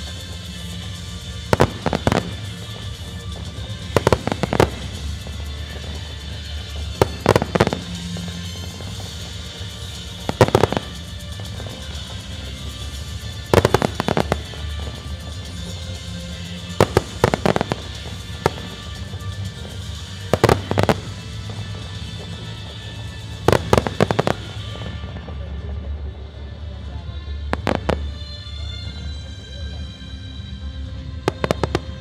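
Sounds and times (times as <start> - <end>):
firework shells bursting: 0.0 - 22.8.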